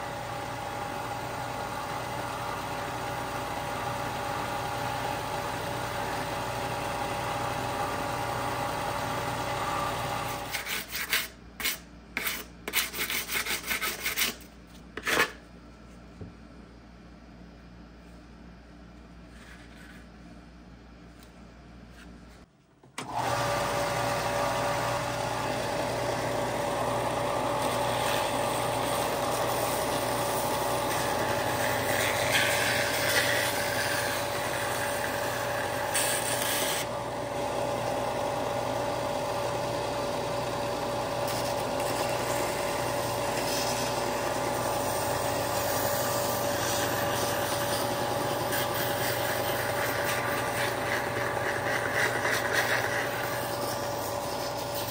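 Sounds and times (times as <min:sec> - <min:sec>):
belt sander motor hum: 0:23.0 - 0:54.9.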